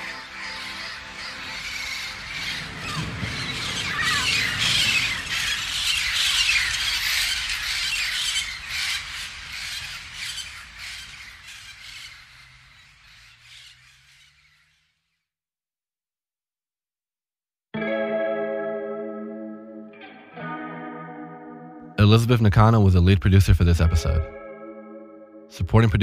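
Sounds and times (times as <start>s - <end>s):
parrots squawking: 0.0s - 15.1s.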